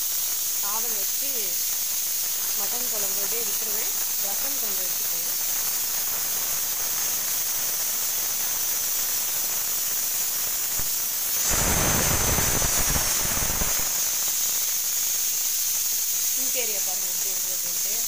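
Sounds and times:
gas stove hissing: 0:00.0 - 0:18.0
loud rough noise: 0:10.8 - 0:14.2.

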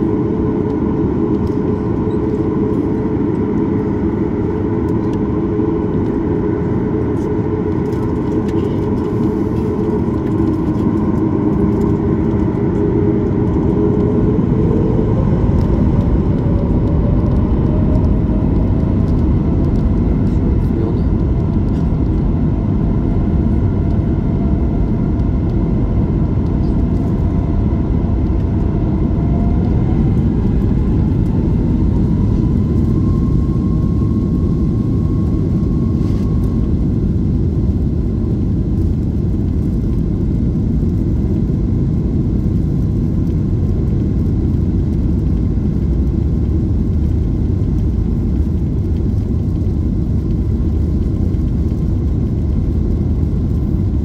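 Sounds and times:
jet engine tone rising: 0:00.0 - 0:42.8
airplane cabin rumble: 0:00.0 - 0:54.0.

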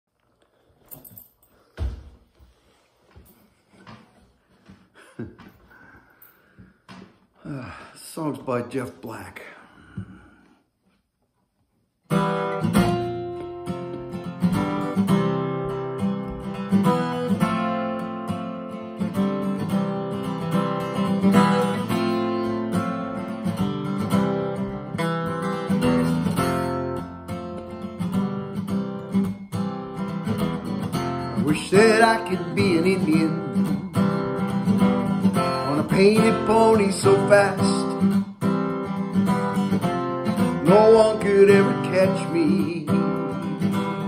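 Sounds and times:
acoustic guitar strumming: 0:12.1 - 0:44.0.

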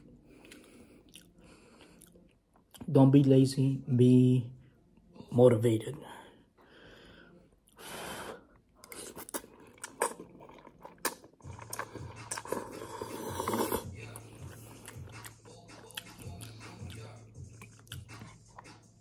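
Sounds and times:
slurping and chewing noodles: 0:08.5 - 0:19.0.

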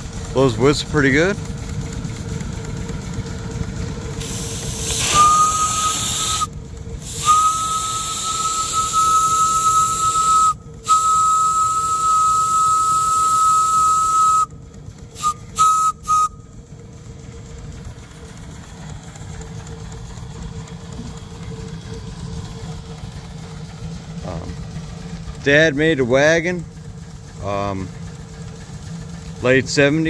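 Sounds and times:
hiss of steam: 0:04.2 - 0:14.4
steam whistle blast: 0:04.2 - 0:14.5, 0:15.2 - 0:16.5.

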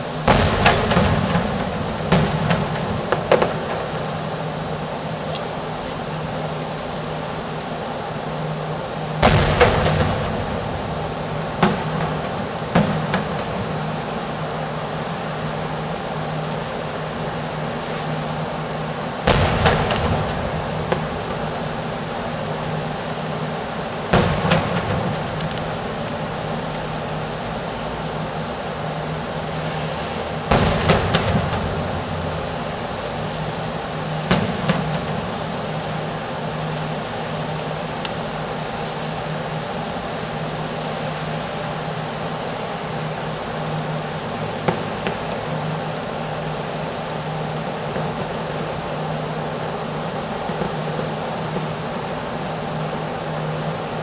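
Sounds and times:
distant fireworks bangs: 0:00.0 - 0:05.4, 0:09.1 - 0:16.6, 0:17.4 - 0:27.4, 0:28.3 - 0:38.0, 0:43.6 - 0:46.6, 0:47.2 - 0:51.9
steady mechanical hum: 0:00.0 - 0:54.0.

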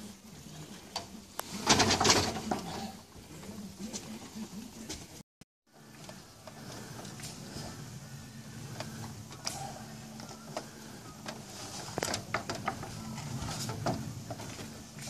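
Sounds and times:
steady low hum: 0:00.0 - 0:15.0
knocks and clatter on wood: 0:10.5 - 0:14.8.

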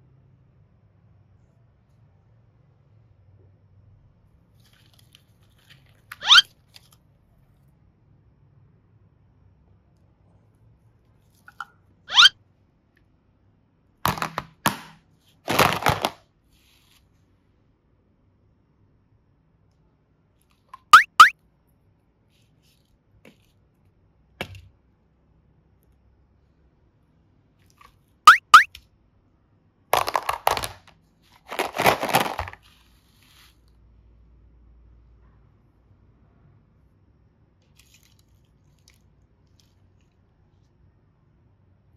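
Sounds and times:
quick rising chirps: 0:12.1 - 0:12.3, 0:21.0 - 0:21.3, 0:28.3 - 0:28.7
plastic boxes clattering in a basket: 0:15.5 - 0:16.2, 0:30.0 - 0:32.6.

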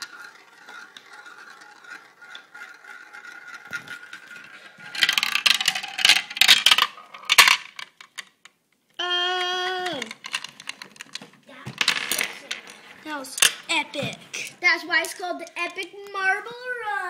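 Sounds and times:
marble rolling in plastic funnel: 0:00.0 - 0:08.4, 0:09.7 - 0:13.7
marble clattering down plastic track: 0:00.0 - 0:08.6, 0:09.3 - 0:13.8, 0:14.9 - 0:16.2.

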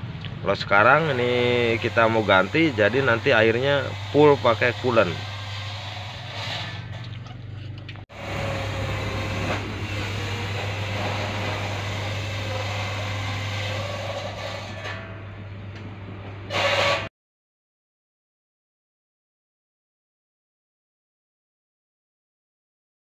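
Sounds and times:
engine humming: 0:06.6 - 0:12.6.

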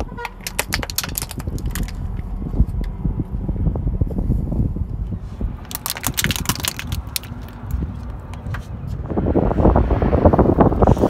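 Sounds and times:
car tyre rolling over asphalt: 0:00.0 - 0:11.0
plastic toy cracking and snapping: 0:00.3 - 0:02.0, 0:05.7 - 0:08.4.

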